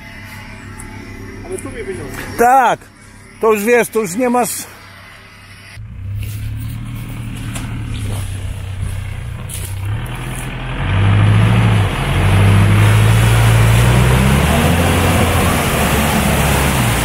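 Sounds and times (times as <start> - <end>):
suv engine revving hard: 5.9 - 17.0
tyres churning mud and water: 6.4 - 17.0.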